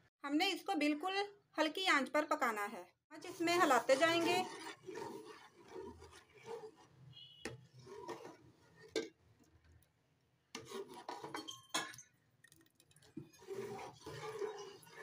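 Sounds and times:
spoon scraping steel pot: 0:03.2 - 0:09.2, 0:10.5 - 0:12.0, 0:13.0 - 0:15.0.

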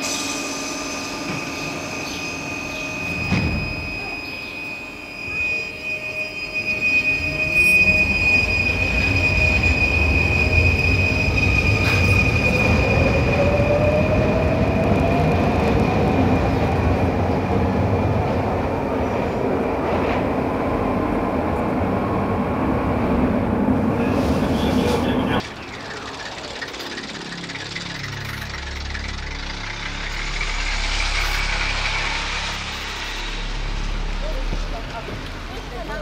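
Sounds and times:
high squeal: 0:00.0 - 0:16.4, 0:25.5 - 0:34.5
rising whine: 0:00.0 - 0:23.8, 0:25.4 - 0:36.0
train wheels rumbling on track: 0:06.8 - 0:36.0.

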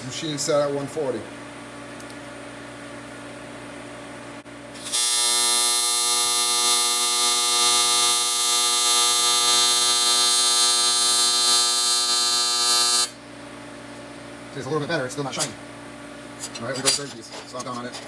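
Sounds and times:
welding arc buzzing: 0:04.7 - 0:13.2.

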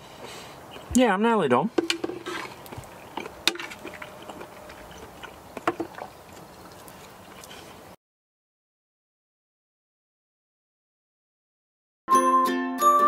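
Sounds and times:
cutlery scraping plates: 0:01.8 - 0:02.6.

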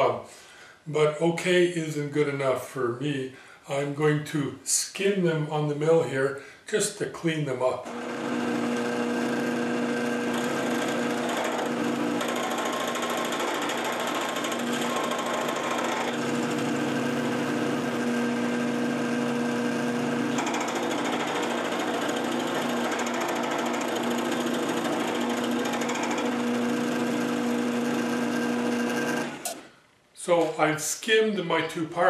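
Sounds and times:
milling machine cutting metal: 0:07.9 - 0:29.6.

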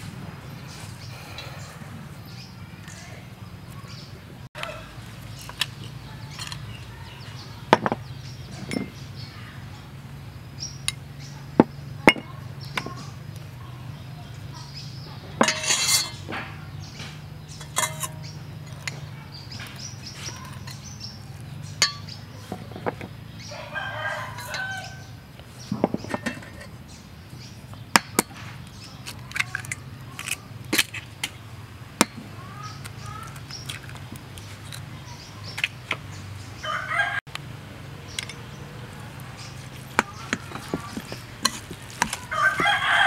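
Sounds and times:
spoon scraping metal bowl: 0:15.4 - 0:16.2, 0:17.6 - 0:19.0
rooster crowing: 0:23.5 - 0:25.2, 0:36.6 - 0:37.2, 0:42.2 - 0:43.0.

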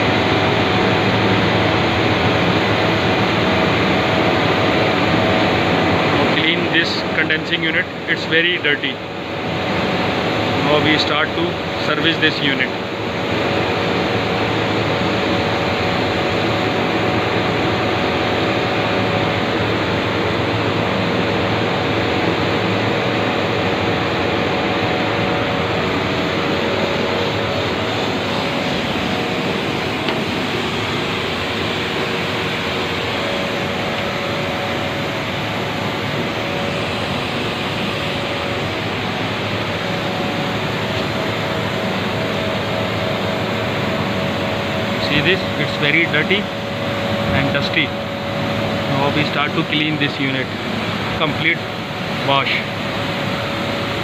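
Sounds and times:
faint machinery hum: 0:00.0 - 0:54.0.

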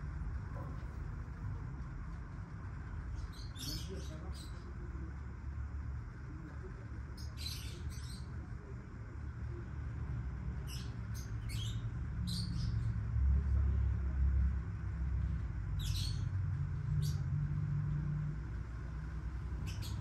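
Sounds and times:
lovebirds chirping: 0:03.1 - 0:04.9, 0:07.1 - 0:08.4, 0:19.4 - 0:20.0.

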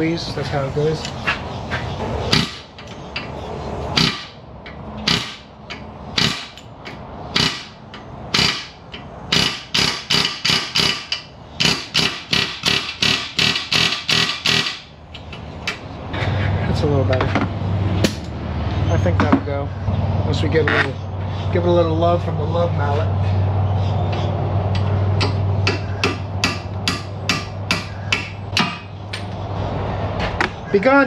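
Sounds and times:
hammer striking metal: 0:25.2 - 0:29.3.

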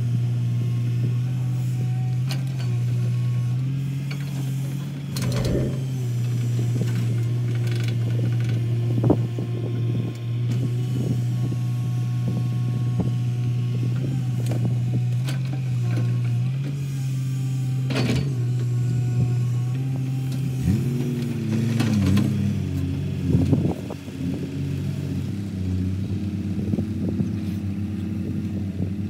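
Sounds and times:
excavator diesel engine running: 0:04.6 - 0:06.2.

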